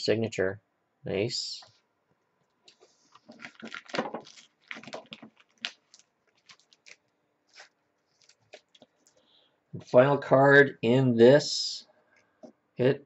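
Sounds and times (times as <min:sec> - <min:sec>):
trading cards rustling and clicking: 0:02.7 - 0:09.2.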